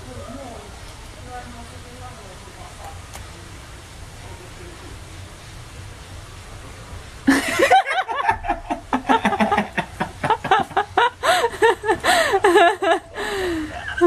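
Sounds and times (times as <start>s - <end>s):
person laughing heartily: 7.3s - 14.0s.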